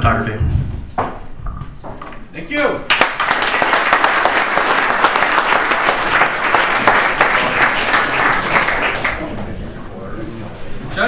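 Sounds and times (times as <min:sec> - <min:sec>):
audience applauding: 0:02.9 - 0:09.6.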